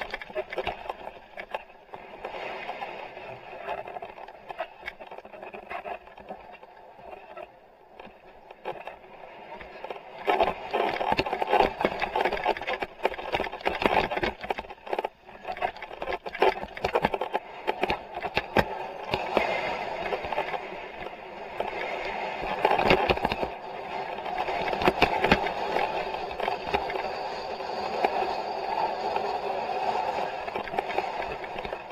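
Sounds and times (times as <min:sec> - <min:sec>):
bike knocking and rattling: 0:00.0 - 0:02.0, 0:09.7 - 0:31.9
riding noise rush: 0:14.9 - 0:31.9.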